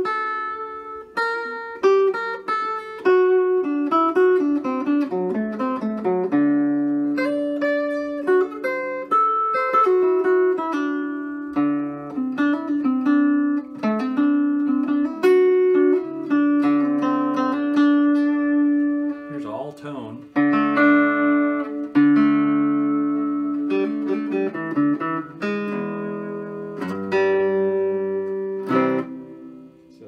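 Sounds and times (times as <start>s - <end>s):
electric archtop guitar picked notes: 0.0s - 30.0s.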